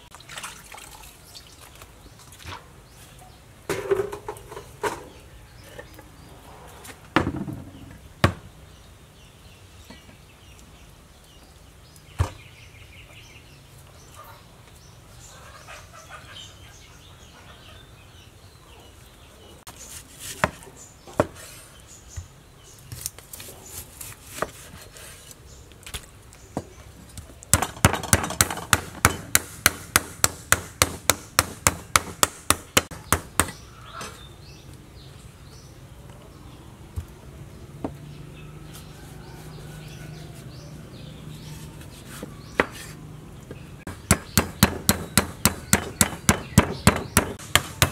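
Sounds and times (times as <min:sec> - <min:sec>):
cleaver chopping on wooden board: 0:27.5 - 0:33.6, 0:42.1 - 0:43.0, 0:43.9 - 0:47.9.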